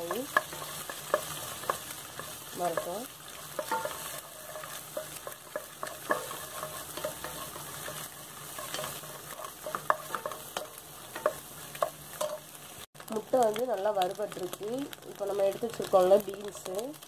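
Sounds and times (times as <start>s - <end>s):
spatula scraping a pan: 0.0s - 12.9s
eggs sizzling in oil: 0.0s - 17.0s.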